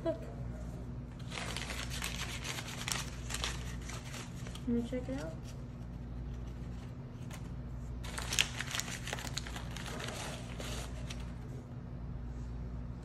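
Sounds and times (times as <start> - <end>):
steady low hum: 0.0 - 13.0
bag crinkling: 1.2 - 5.2, 8.0 - 11.3.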